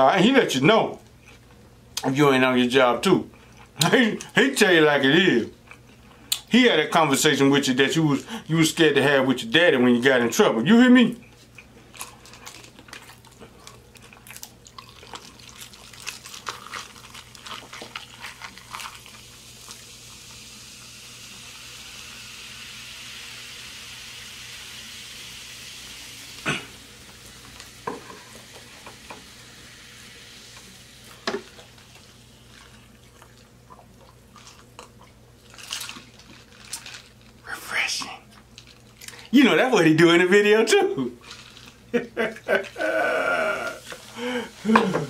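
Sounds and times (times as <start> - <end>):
fizzy drink pouring into glass: 14.8 - 33.5.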